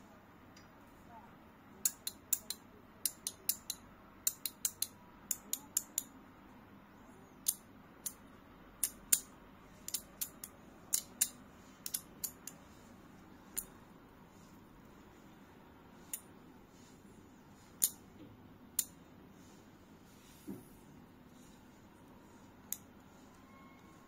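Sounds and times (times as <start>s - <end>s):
fidget toy clicks: 1.8s - 6.1s, 9.9s - 12.6s.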